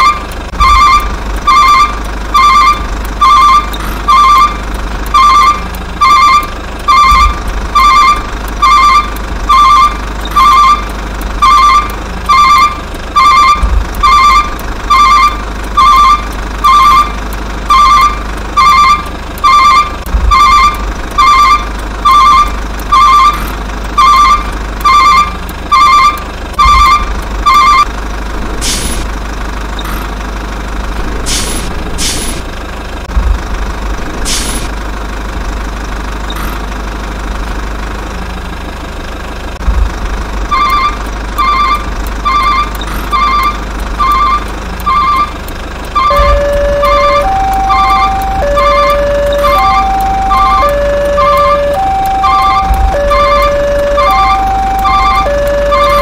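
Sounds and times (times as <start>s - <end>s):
reversing alarm beeping: 0.0s - 27.9s, 34.3s - 34.7s, 40.4s - 56.0s
truck engine rumble: 0.0s - 56.0s.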